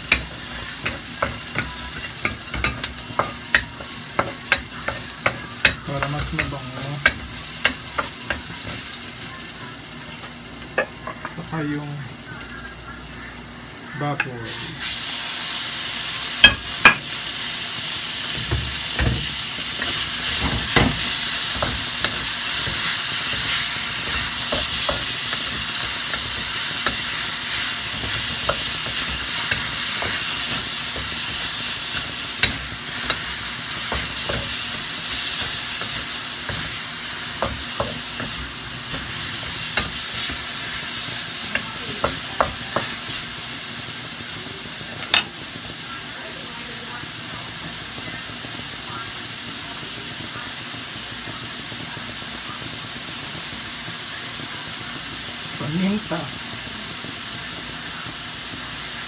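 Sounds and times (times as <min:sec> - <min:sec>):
spatula scraping and knocking wok: 0:00.0 - 0:09.3, 0:16.4 - 0:17.2, 0:18.2 - 0:43.7, 0:44.8 - 0:45.6
meat sizzling in a wok: 0:00.0 - 0:59.0.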